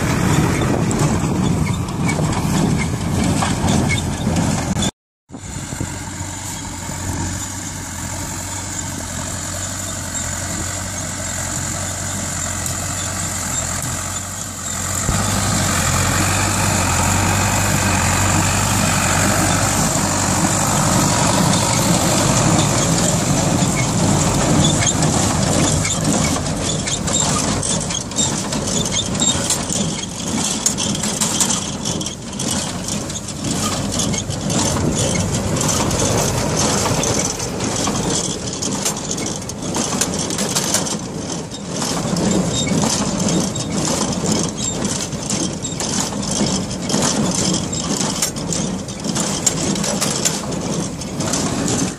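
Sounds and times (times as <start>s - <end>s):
tractor diesel engine running: 0.0s - 51.9s
baler mechanism clattering: 19.2s - 51.9s.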